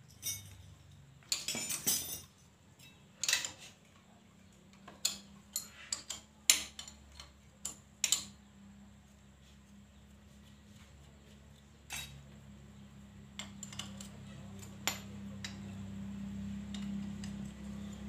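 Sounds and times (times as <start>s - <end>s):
hand tools tapping on metal engine: 13.4s - 15.8s, 16.6s - 18.0s.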